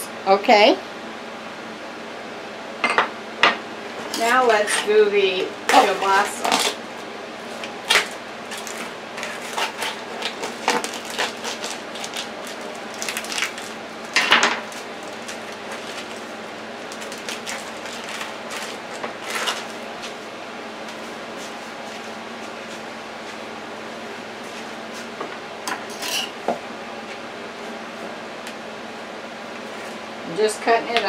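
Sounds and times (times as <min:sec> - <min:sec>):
plastic package rustling: 0:04.0 - 0:20.3.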